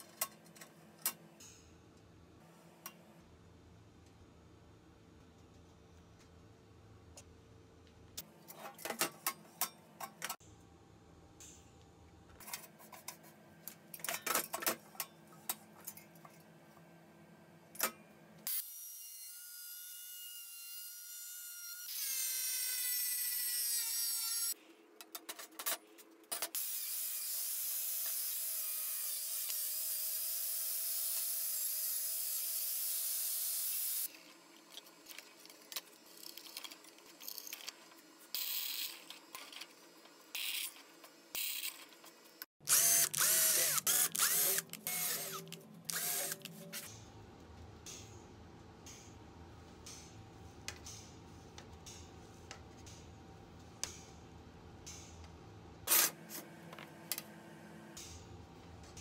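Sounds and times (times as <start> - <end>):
power tool motor whining: 42.6 - 46.5.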